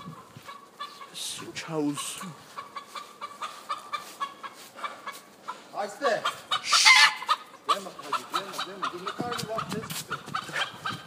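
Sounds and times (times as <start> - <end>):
rooster clucking: 0.0 - 11.0
rooster harsh call: 6.6 - 7.3.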